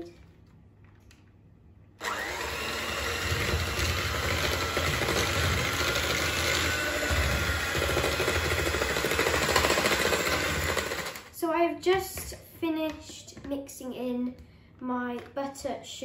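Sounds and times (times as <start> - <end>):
beaters whisking in bowl: 2.0 - 11.2
electric hand mixer running: 2.0 - 11.3.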